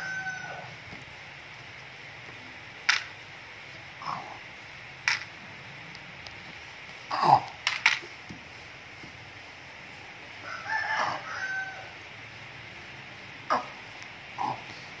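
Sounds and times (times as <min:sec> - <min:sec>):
sharp clicks: 0:02.8 - 0:03.2, 0:05.0 - 0:06.5.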